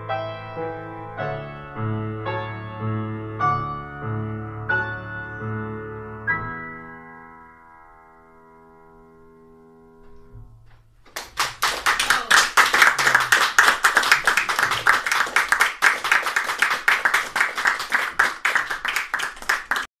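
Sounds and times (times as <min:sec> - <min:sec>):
piano chord: 0:00.0 - 0:10.8
audience applause: 0:11.1 - 0:19.9.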